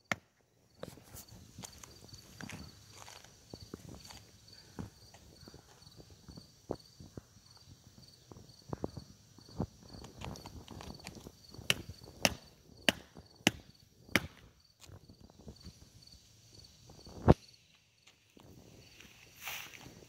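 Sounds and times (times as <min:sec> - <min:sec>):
insects chirping: 0:00.0 - 0:20.0
footsteps on wooden boards: 0:00.8 - 0:05.8.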